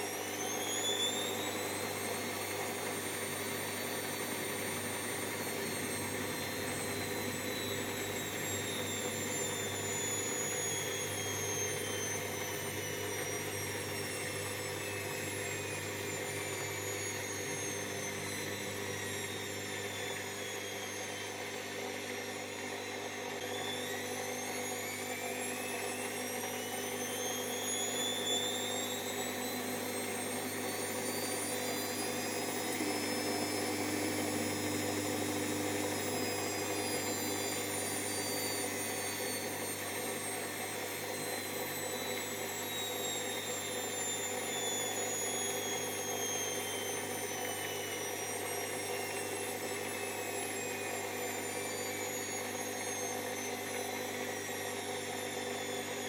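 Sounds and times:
washing machine spinning: 0:00.8 - 0:21.0, 0:27.1 - 0:52.1.

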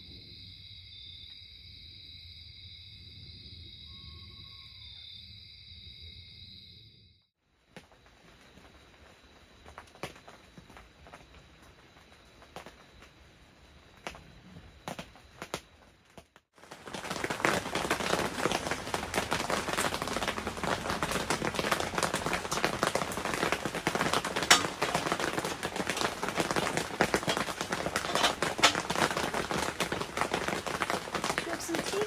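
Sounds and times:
rain pattering on tent: 0:07.5 - 0:32.0
sharp raindrop cracks: 0:14.9 - 0:32.0.

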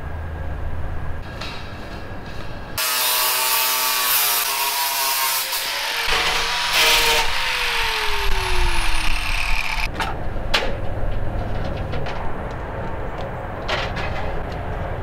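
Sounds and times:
angle grinder grinding metal: 0:02.8 - 0:09.9.

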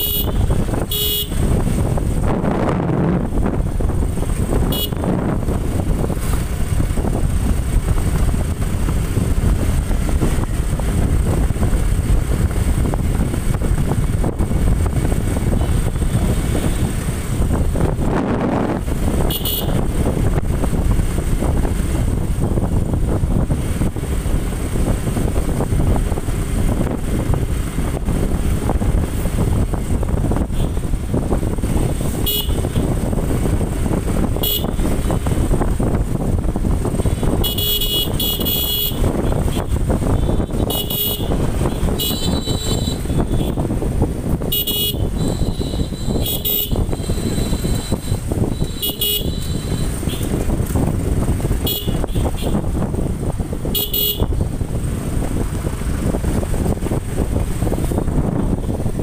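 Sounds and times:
motorcycle engine and road rumble: 0:00.0 - 0:59.0
wind rushing over microphone: 0:00.0 - 0:59.0
short horn toots: 0:44.5 - 0:50.3.

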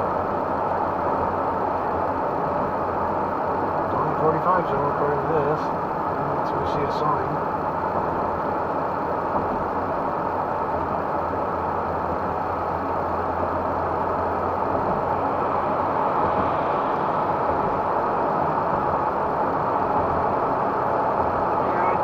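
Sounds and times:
low engine drone: 0:00.0 - 0:22.0
tyres on asphalt: 0:00.0 - 0:22.0.

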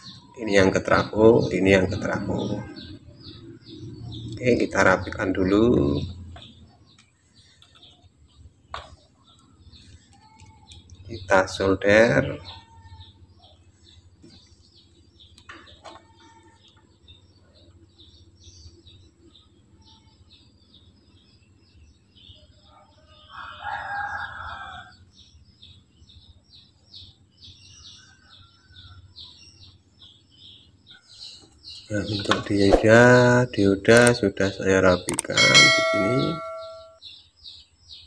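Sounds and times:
small birds chirping: 0:00.0 - 0:38.0
rooster crowing: 0:23.0 - 0:25.1.

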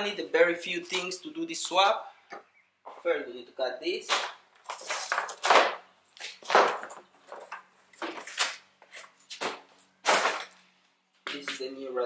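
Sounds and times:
cardboard scraping and rustling: 0:04.7 - 0:10.5.

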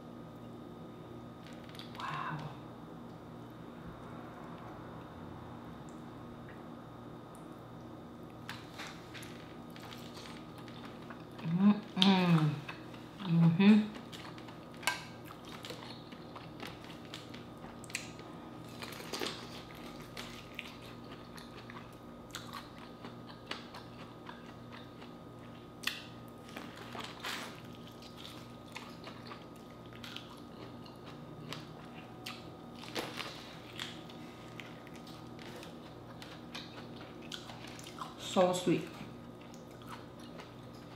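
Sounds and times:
chewing and biting: 0:13.9 - 0:38.2, 0:39.3 - 0:40.9.

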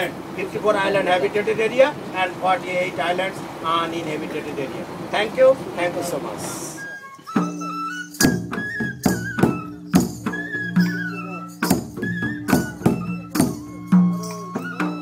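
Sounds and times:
high wavering melody: 0:06.6 - 0:15.0
barrel drum beating: 0:07.2 - 0:15.0.

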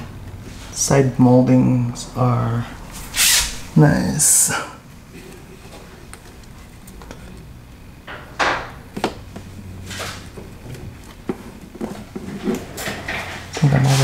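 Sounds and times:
steady low hum: 0:00.0 - 0:14.0
rustling scrapes: 0:02.9 - 0:03.7, 0:09.8 - 0:10.3.

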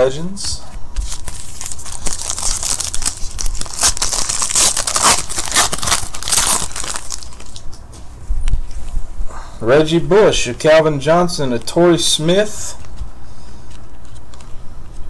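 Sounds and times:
foil pack tearing: 0:01.0 - 0:07.8
wrapper crinkling: 0:01.0 - 0:07.8.

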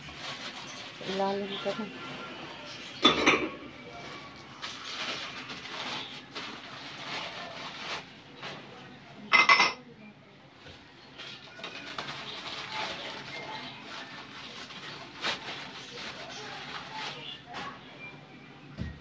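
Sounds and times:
newspaper rustling and crumpling: 0:00.0 - 0:01.6, 0:04.2 - 0:08.7, 0:11.2 - 0:17.8.

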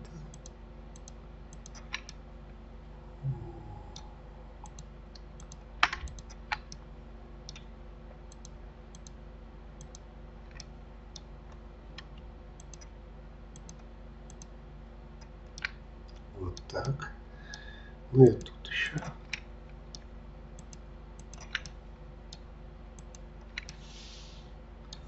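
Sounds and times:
steady low hum: 0:00.0 - 0:25.0
mouse and keyboard clicks: 0:00.3 - 0:02.2, 0:05.4 - 0:06.8, 0:09.8 - 0:11.3, 0:12.6 - 0:12.9, 0:13.6 - 0:14.5, 0:20.6 - 0:22.4, 0:23.0 - 0:23.8.

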